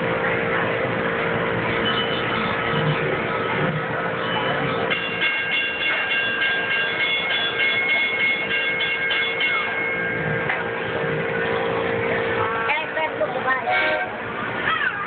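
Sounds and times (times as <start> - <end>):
steady hum: 0.0 - 14.7
high bell-like chime: 4.2 - 10.4.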